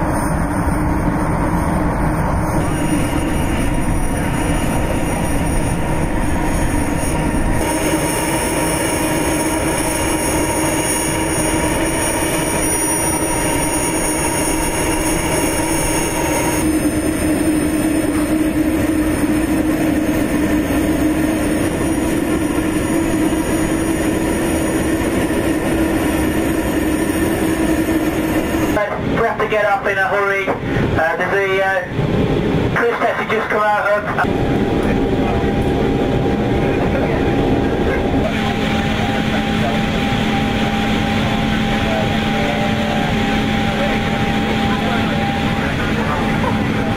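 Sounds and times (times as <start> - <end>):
aircraft turbine drone: 0.0 - 46.9
high turbine whine: 0.0 - 46.9.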